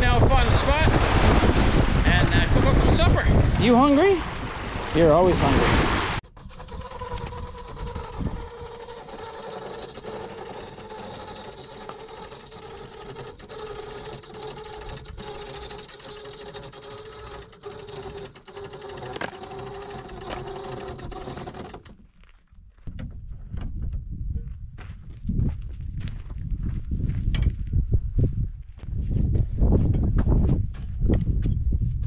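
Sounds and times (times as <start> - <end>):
electric motor whining: 6.2 - 22.0.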